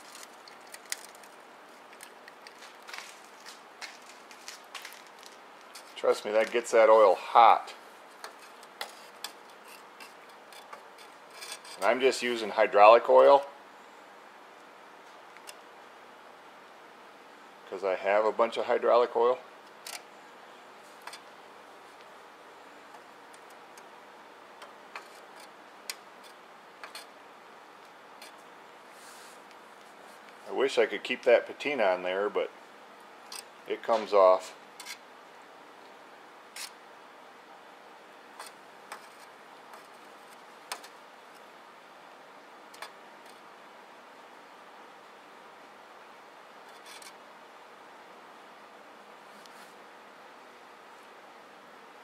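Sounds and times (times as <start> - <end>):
oil ticking and popping: 0.0 - 2.9.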